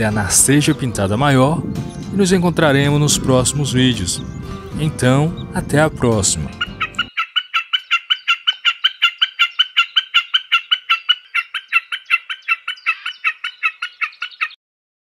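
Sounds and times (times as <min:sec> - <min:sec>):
snipe calling: 0:00.0 - 0:14.6.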